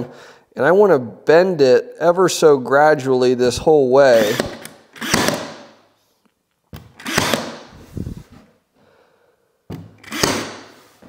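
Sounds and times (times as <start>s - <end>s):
nailer firing sharp bangs: 4.2s - 5.8s, 7.0s - 7.7s, 10.0s - 10.8s.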